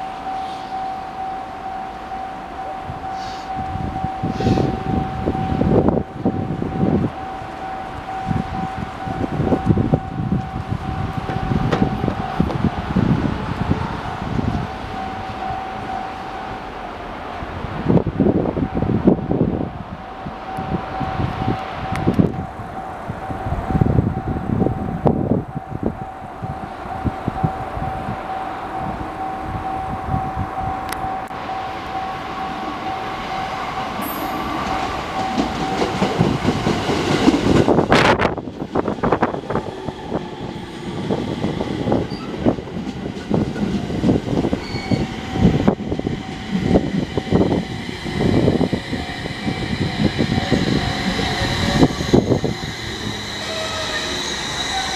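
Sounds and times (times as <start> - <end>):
level crossing warning bell: 0.0 - 17.0, 20.2 - 38.4, 41.0 - 54.9.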